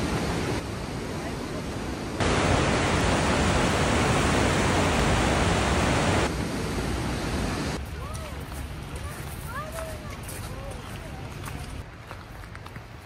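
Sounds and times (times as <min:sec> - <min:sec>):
waterfall roaring: 0:00.0 - 0:07.8.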